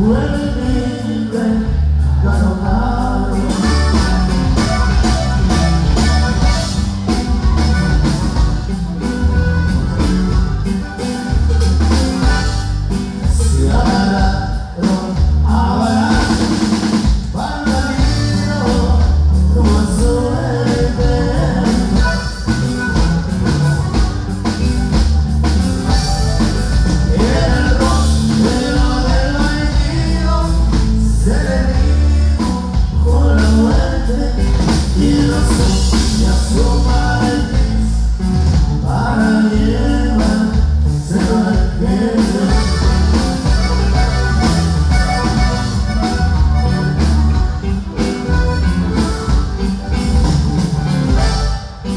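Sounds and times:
person singing: 0.0 - 8.0, 13.1 - 22.8, 26.9 - 38.1, 38.7 - 46.2
acoustic guitar: 0.0 - 51.9
drums: 0.0 - 51.9
electric bass: 0.0 - 51.9.

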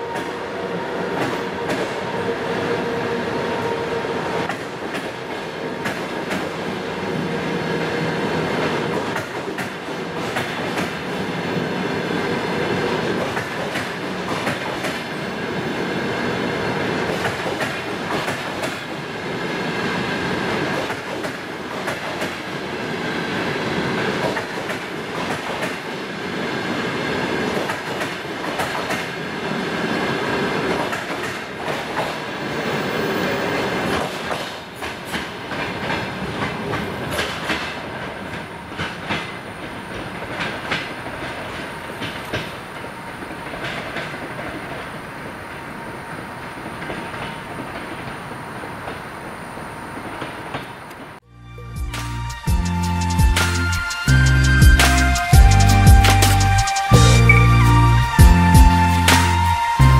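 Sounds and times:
train coaches rolling past: 0.0 - 59.9
wheels clicking over rail joints: 33.8 - 44.8.

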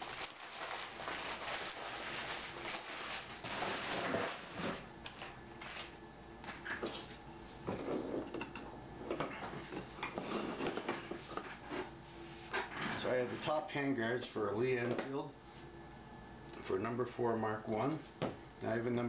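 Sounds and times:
wrapping paper rustling and crinkling: 0.0 - 6.0.

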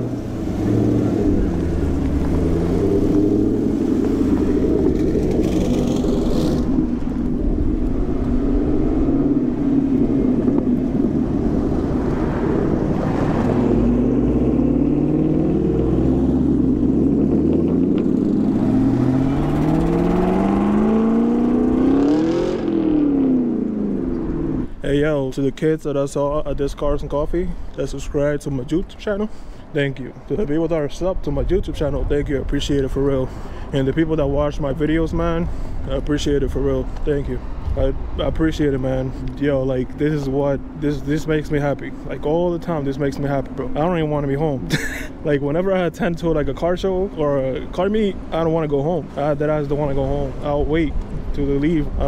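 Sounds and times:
car accelerating away: 0.0 - 24.7
car engines droning: 0.0 - 25.7, 26.4 - 52.0.

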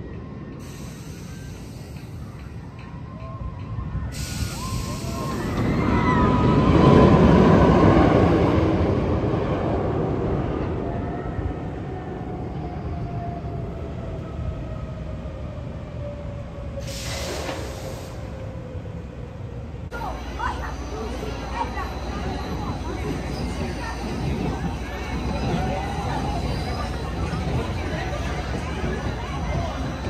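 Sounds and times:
roller coaster rumble: 0.0 - 30.0
air hiss: 4.2 - 5.4, 16.8 - 18.2.

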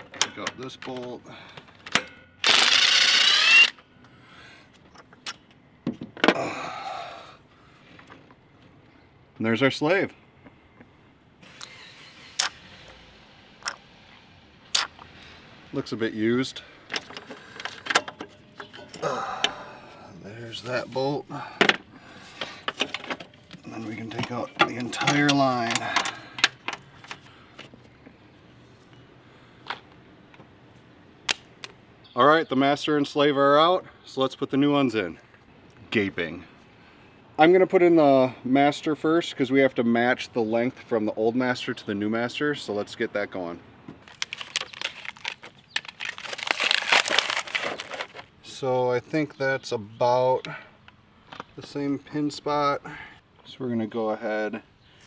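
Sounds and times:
cordless power tool spinning: 2.4 - 3.8, 11.4 - 13.0
metal parts clicking and knocking: 22.4 - 27.2.

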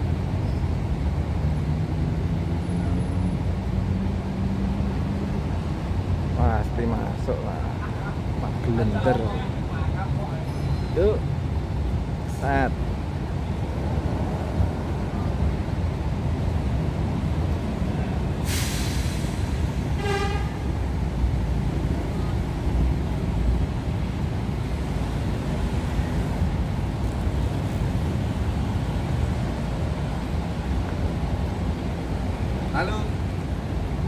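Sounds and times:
air brakes hissing: 18.4 - 20.6
short horn toot: 20.0 - 20.7.

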